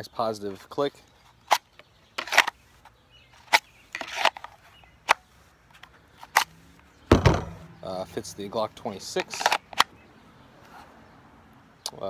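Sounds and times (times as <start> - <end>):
pistol clicking into holster: 1.4 - 2.6, 9.2 - 9.9.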